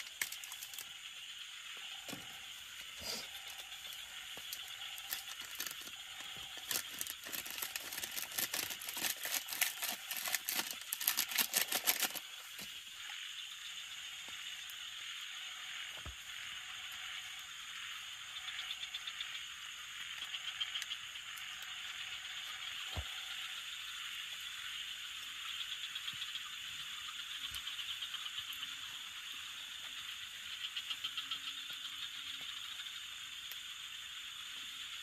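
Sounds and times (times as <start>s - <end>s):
fast clicks and rattling: 0.0s - 0.8s, 3.9s - 12.6s
steady hiss: 0.0s - 35.0s.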